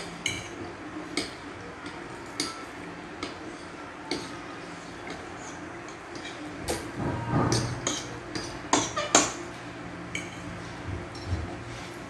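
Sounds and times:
forks clinking on ceramic plates: 10.1s - 10.5s.

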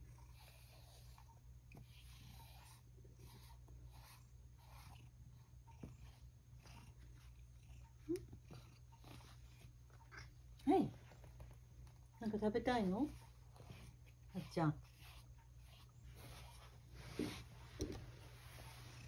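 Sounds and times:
brush swishing through fur: 12.6s - 19.0s.

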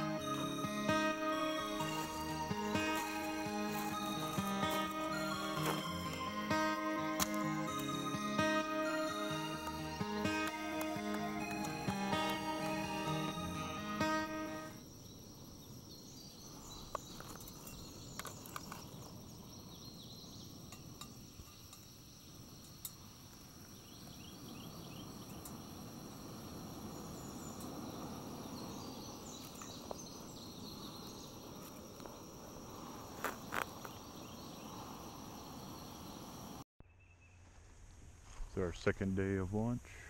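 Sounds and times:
insects buzzing: 0.0s - 36.6s
low rushing haze: 24.2s - 36.6s.

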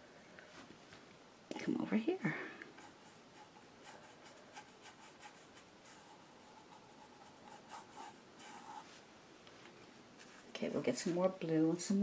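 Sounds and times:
paintbrush scratching on canvas: 2.7s - 9.0s.

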